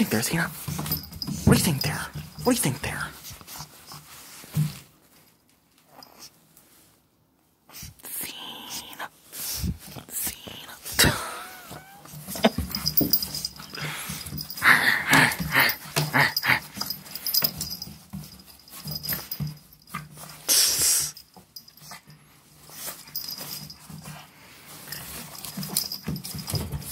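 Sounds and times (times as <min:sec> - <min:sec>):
dog play noises and breathing: 0:00.0 - 0:26.9.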